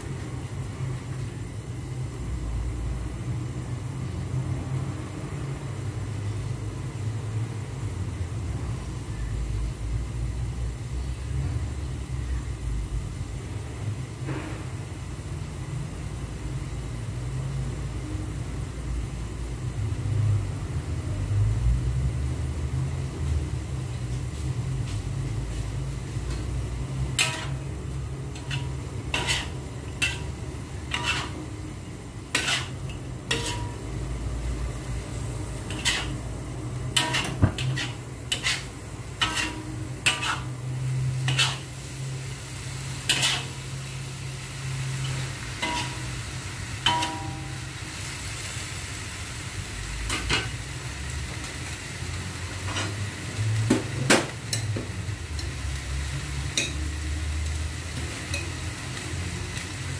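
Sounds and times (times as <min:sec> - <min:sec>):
metal spatula scraping a wok: 0:27.0 - 0:34.6, 0:35.2 - 0:42.2, 0:42.8 - 0:47.8, 0:52.6 - 0:53.0.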